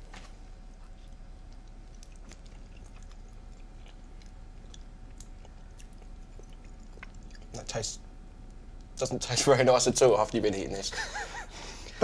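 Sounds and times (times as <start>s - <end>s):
faint background hum: 0.0s - 12.0s
person chewing food: 0.3s - 7.7s.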